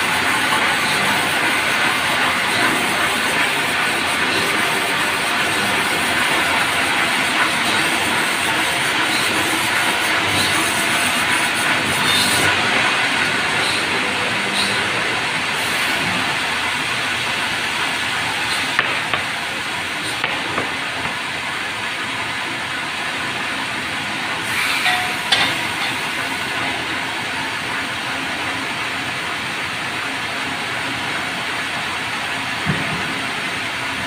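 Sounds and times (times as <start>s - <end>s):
band saw cutting log: 0.0s - 16.4s.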